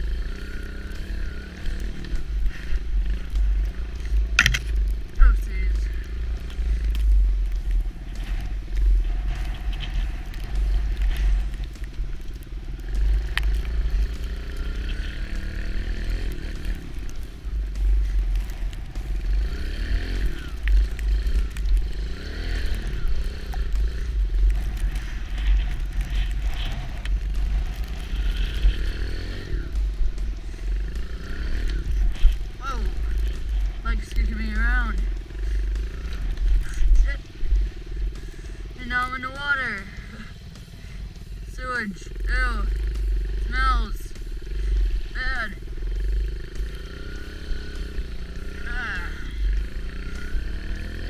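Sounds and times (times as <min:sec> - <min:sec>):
wind rumble on microphone: 0:00.0 - 0:38.8
dirt bike engine revving: 0:00.0 - 0:51.0.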